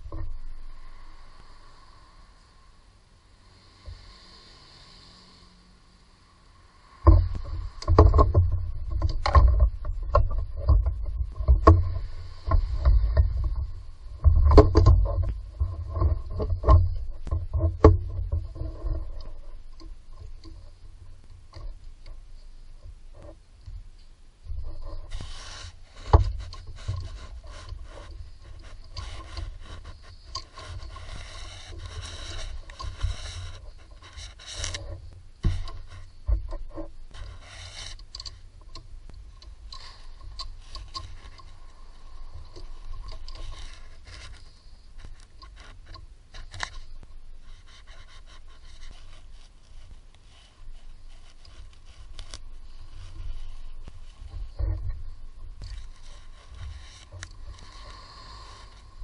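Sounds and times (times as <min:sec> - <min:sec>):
low rumbling handling noise: 0:00.0 - 0:02.0, 0:06.8 - 0:59.0
small clicks: 0:23.1 - 0:50.2
hands scraping engine parts: 0:24.6 - 0:38.8.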